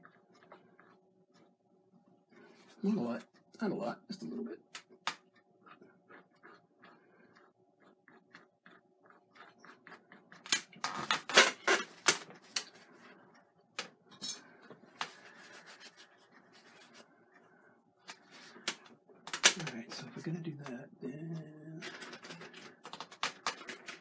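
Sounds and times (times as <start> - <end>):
brush dabbing on canvas: 15.1 - 17.1.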